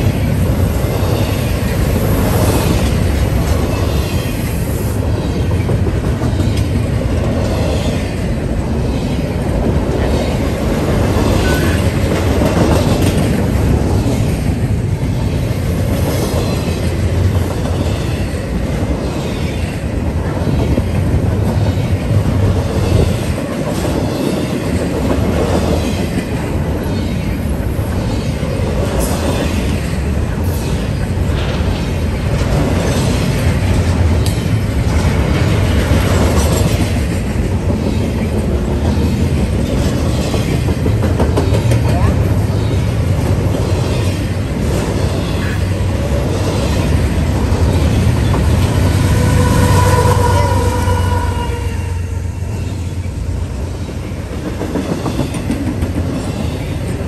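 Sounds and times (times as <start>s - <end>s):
train wheels rumbling on rail: 0.0s - 57.0s
wheels clacking over rail joints: 5.2s - 51.5s, 52.5s - 57.0s.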